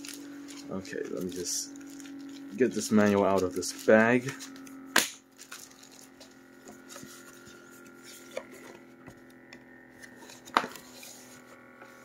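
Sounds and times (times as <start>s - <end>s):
paper rustling and crackling: 0.0s - 4.6s, 5.3s - 9.2s
massager motor hum: 0.0s - 12.0s.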